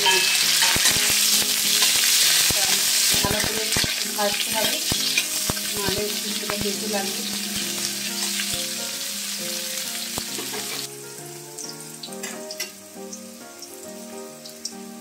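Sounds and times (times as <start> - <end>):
metal spatula scraping a pan: 0.0 - 5.7
vegetable slices sizzling in oil: 0.0 - 15.0.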